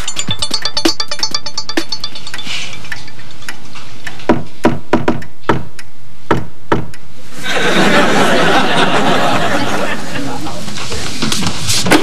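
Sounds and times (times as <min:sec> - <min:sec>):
knocking on wooden door: 0:04.3 - 0:05.7, 0:06.3 - 0:06.9.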